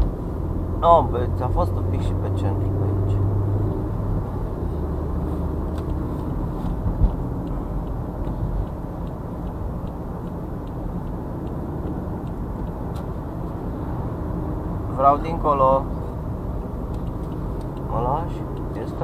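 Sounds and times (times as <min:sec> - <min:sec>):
car engine and road noise: 0:00.0 - 0:19.0
faint regular ticking: 0:05.7 - 0:13.5, 0:16.5 - 0:19.0.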